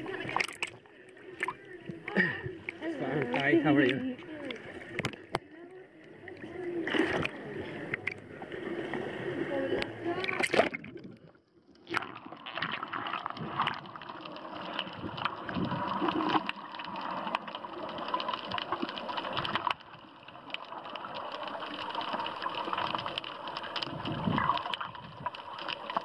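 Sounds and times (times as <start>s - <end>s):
underwater clicks: 0.0s - 6.2s, 6.8s - 8.3s, 9.8s - 26.0s
underwater rushing and gurgling: 0.0s - 26.0s.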